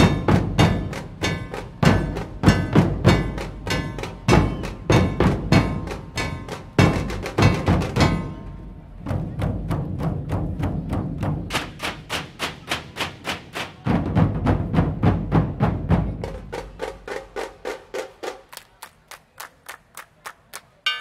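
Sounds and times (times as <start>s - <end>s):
deep drum booms: 0.0s - 12.3s, 13.9s - 16.8s
drum troupe playing: 0.0s - 18.5s.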